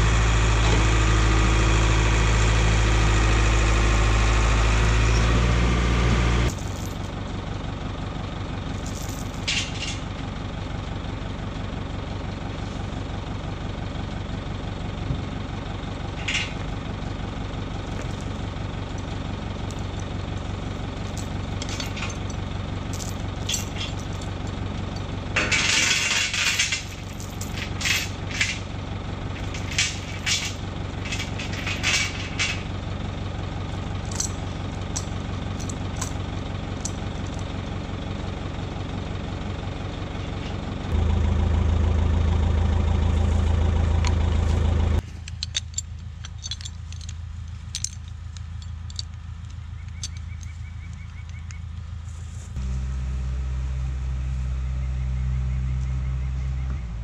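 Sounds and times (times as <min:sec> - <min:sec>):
bulldozer diesel engine idling: 0:00.0 - 0:57.0
metal chain clinks and rattles: 0:06.5 - 0:07.1, 0:08.7 - 0:10.0, 0:17.8 - 0:18.4, 0:20.8 - 0:28.6, 0:29.3 - 0:32.7, 0:34.0 - 0:36.2, 0:45.1 - 0:50.6.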